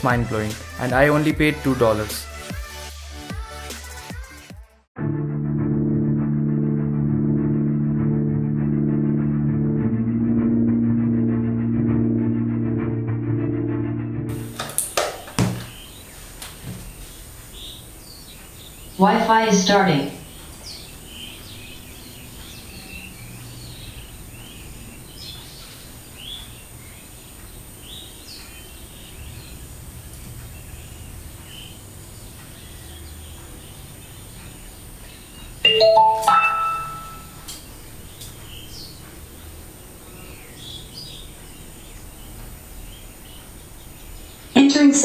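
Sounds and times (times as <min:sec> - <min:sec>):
faint birds chirping: 0:15.2 - 0:45.0
rising start-up chime: 0:35.7 - 0:37.5.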